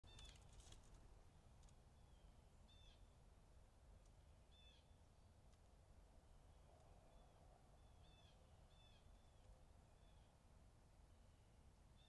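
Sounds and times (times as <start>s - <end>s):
faint bird calls: 0.1s - 0.6s, 2.0s - 3.1s, 4.5s - 5.0s, 6.5s - 10.4s
faint clicks: 0.1s - 1.0s, 1.6s - 1.8s, 5.5s - 5.7s.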